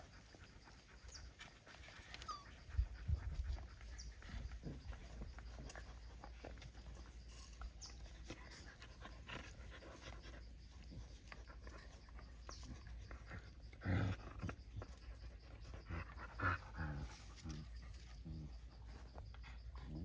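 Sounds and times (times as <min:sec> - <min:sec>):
puppies nursing clicks and scuffles: 0:00.0 - 0:20.0
low dog growl: 0:02.2 - 0:20.0.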